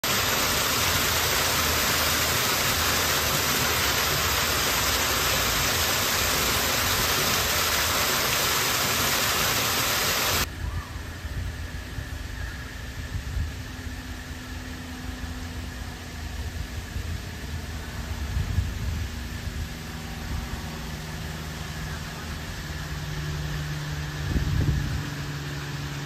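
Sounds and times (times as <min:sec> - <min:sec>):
water jets splashing into pool: 0:00.0 - 0:10.5.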